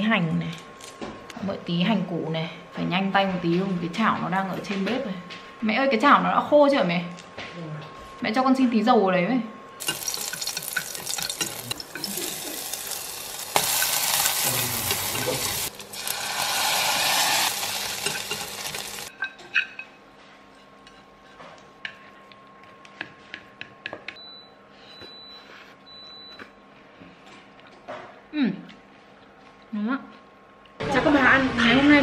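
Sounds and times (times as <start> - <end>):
shallots sizzling in hot oil: 9.8 - 19.1.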